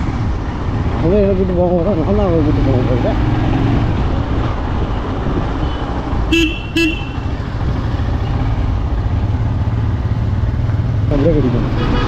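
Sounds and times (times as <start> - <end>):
vehicle horn toots: 5.6 - 7.2, 11.8 - 12.0
motorcycle engine running: 6.4 - 11.6.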